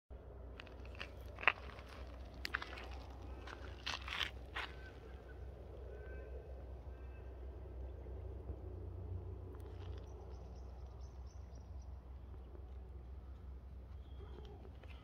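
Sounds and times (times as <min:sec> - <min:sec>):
steady low rumble: 0:00.1 - 0:15.0
faint bird chirps: 0:13.9 - 0:15.0.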